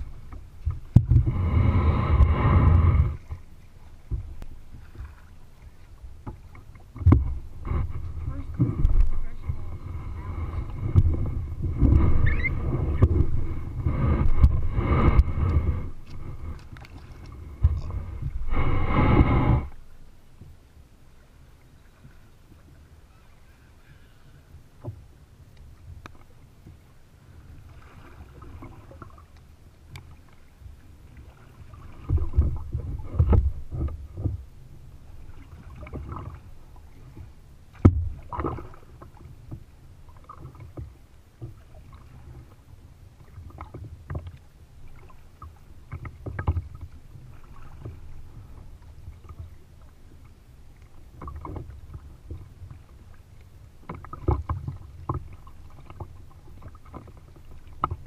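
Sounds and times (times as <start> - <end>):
low rumbling thuds: 0.0 - 3.4, 4.0 - 5.1, 6.2 - 19.9
paddle splashing in water: 0.0 - 20.6, 25.6 - 58.0
water slapping a hull: 0.0 - 58.0.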